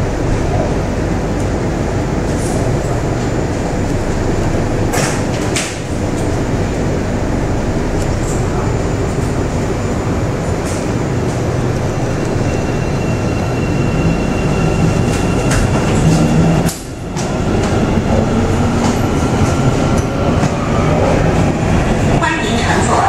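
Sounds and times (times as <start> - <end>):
subway train rumble: 0.0 - 23.0.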